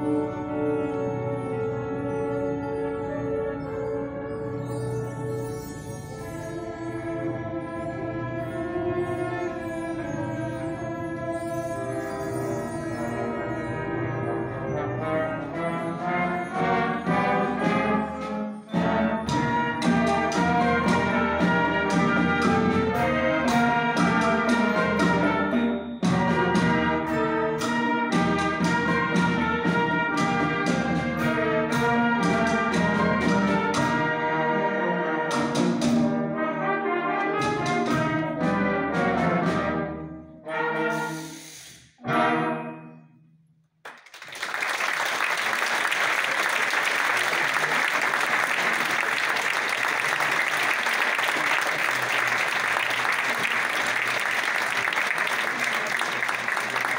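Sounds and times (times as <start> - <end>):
wind band playing: 0.0 - 43.0, 44.3 - 56.9
audience applause: 43.9 - 56.9.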